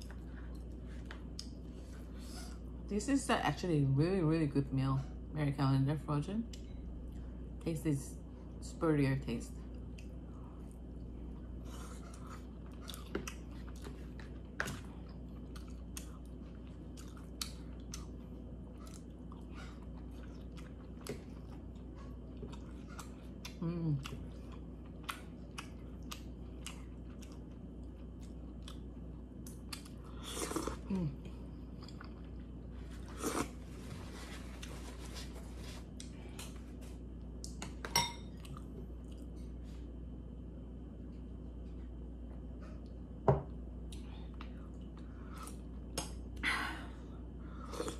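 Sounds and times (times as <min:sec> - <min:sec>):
close chewing and mouth sounds: 0:00.0 - 0:02.7, 0:09.6 - 0:37.6, 0:38.3 - 0:40.0, 0:43.8 - 0:46.4.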